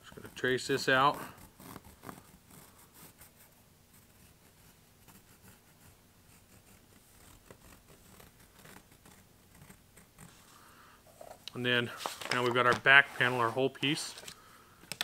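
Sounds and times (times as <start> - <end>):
pencil scratching on leather: 0.0 - 10.5.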